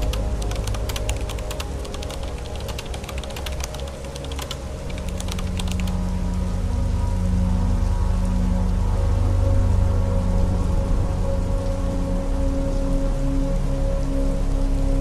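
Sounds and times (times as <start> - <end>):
raindrops tapping on a car: 0.0 - 6.0
soft background music: 0.0 - 15.0.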